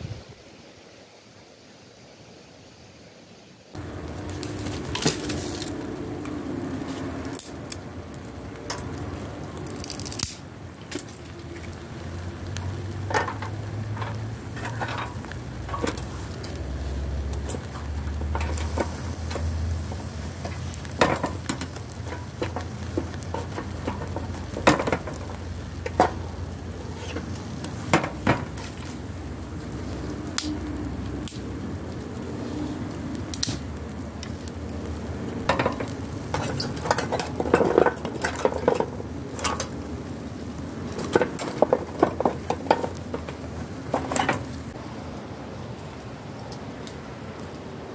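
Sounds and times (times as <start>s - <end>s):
fish sizzling on charcoal grill: 3.7s - 47.9s
sharp pops and crackles: 3.8s - 44.8s.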